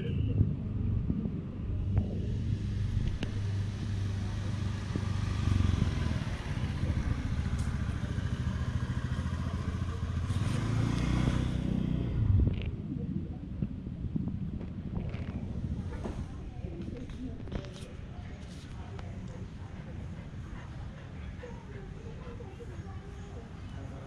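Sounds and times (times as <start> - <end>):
motorcycle engine idling: 0.1 - 12.4.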